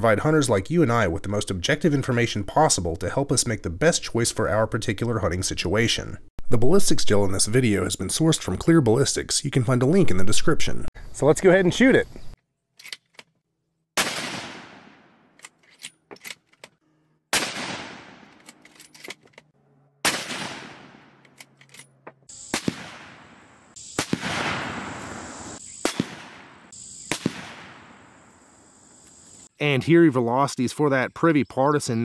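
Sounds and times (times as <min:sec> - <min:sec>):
rifle shots echoing: 0:14.0 - 0:15.4, 0:17.3 - 0:18.5, 0:20.0 - 0:21.2, 0:22.4 - 0:28.3.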